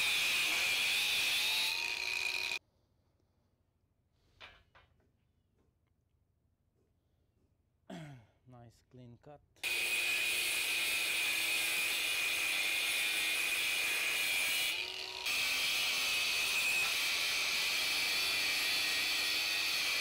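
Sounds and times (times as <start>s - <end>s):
angle grinder cutting steel: 0.0s - 2.6s, 9.6s - 20.0s.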